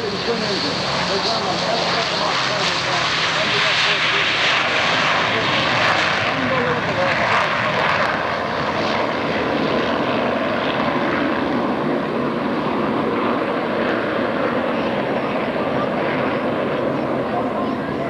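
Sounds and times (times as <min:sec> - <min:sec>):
jet engines roaring: 0:00.0 - 0:18.0.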